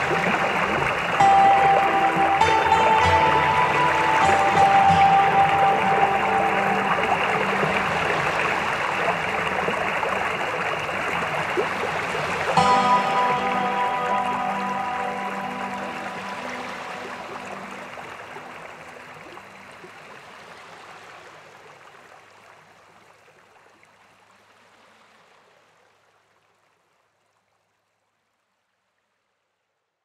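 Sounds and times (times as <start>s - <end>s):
background music held notes: 0.0s - 19.8s
rushing river water: 0.0s - 27.7s.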